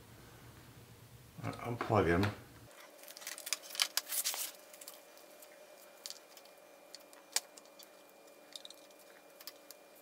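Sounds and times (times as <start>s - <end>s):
small clicks and rattles: 6.0s - 9.8s.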